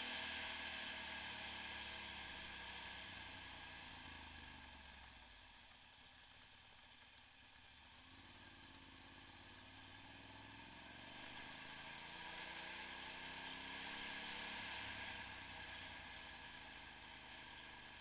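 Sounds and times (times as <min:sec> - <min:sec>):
wind and road hiss: 0:00.0 - 0:04.8, 0:06.5 - 0:18.0
motorcycle engine accelerating: 0:07.8 - 0:18.0.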